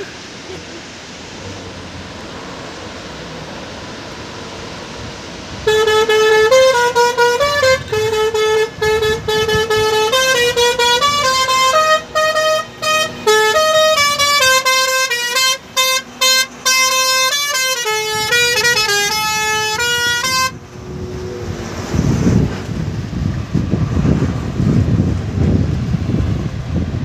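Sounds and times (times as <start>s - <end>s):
truck musical horn playing tune: 5.5s - 21.0s.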